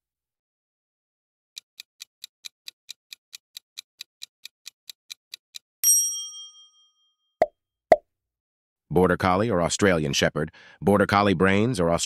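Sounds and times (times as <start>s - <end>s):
quick clock ticks: 1.6s - 5.7s
bright bell ding: 5.8s - 7.0s.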